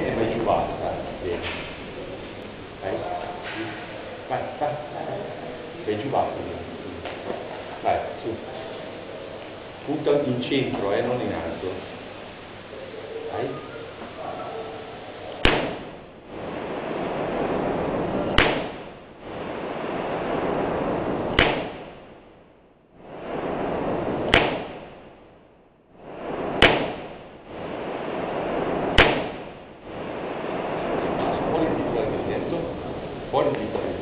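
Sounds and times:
revolver gunshots: 15.3 - 22.4, 23.2 - 25.4, 26.2 - 31.2.

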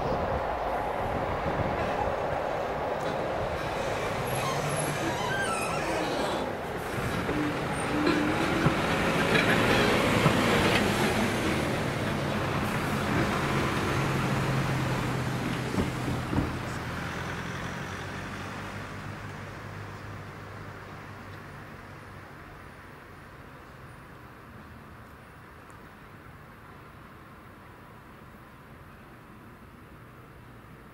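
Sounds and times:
vehicles driving past: 0.0 - 22.2.

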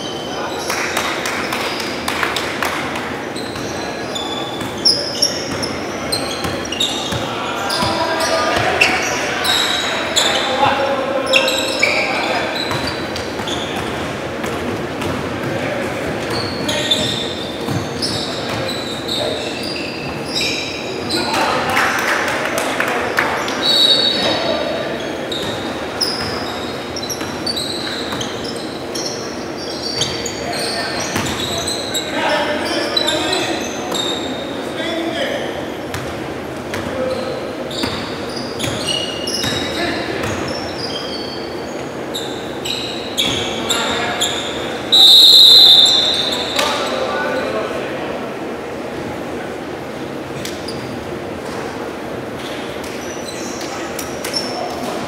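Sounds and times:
shoes squeaking on hardwood floor: 2.7 - 21.6, 23.4 - 34.6, 36.7 - 47.5.

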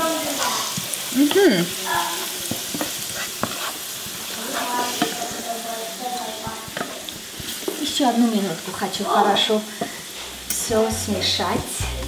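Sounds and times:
onions sizzling in a skillet: 0.0 - 12.0
wooden spatula scraping a pan: 2.4 - 5.6.

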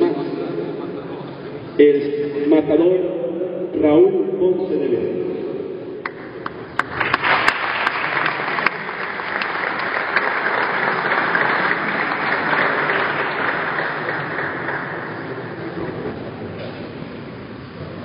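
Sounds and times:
audience applause: 6.0 - 16.3.

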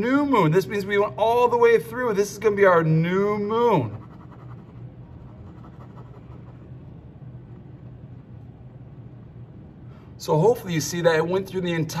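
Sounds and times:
steady low hum: 0.0 - 12.0
pen scratching on paper: 3.8 - 6.6.

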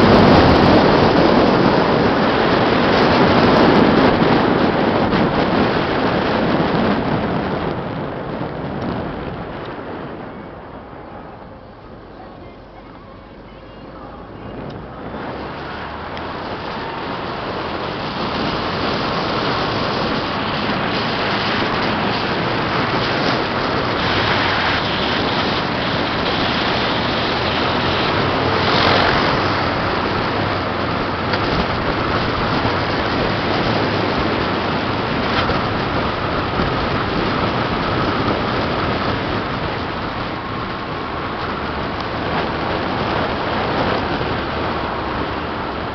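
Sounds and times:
wind and road noise in car: 0.0 - 45.9.

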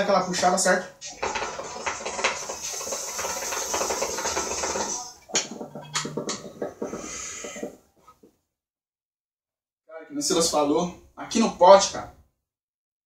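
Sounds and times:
hookah water bubbling: 0.8 - 8.0.

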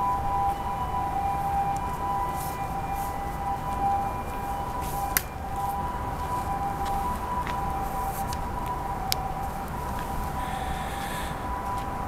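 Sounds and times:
steady two-tone whine: 0.0 - 12.0.

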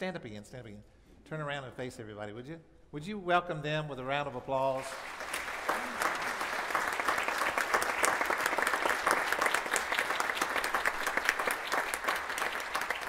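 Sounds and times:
congregation applauding: 4.8 - 13.0.

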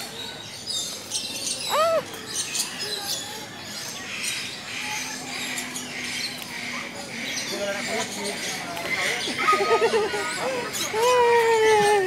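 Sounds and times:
birds chirping and squawking: 0.0 - 12.0.

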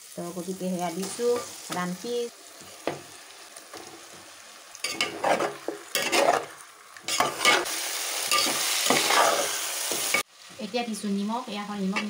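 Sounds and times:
chicken sizzling in hot oil: 0.0 - 12.0
steel spatula scraping pot: 4.9 - 6.5, 7.1 - 7.7, 8.3 - 9.5.

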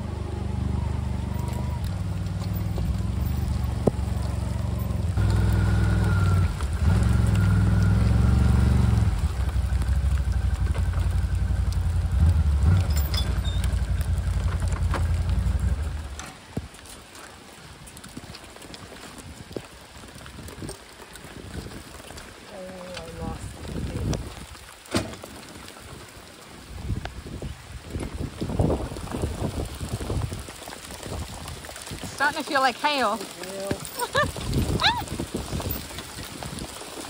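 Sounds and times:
quad bike engine under load: 0.0 - 16.4.

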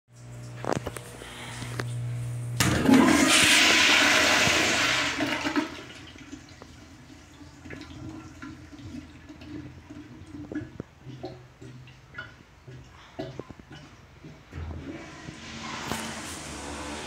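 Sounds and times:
toilet flushing water rush: 2.6 - 11.8, 14.2 - 17.0
water trickling: 5.9 - 17.0.

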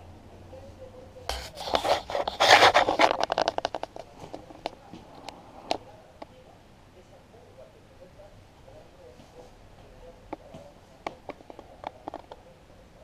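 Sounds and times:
scraping and rubbing on microphone: 1.3 - 5.8.

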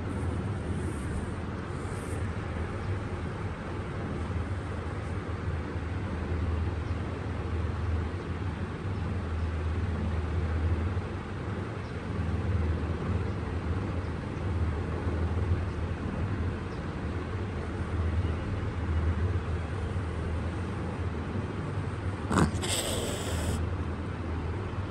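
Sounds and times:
cat hissing: 22.2 - 23.6.

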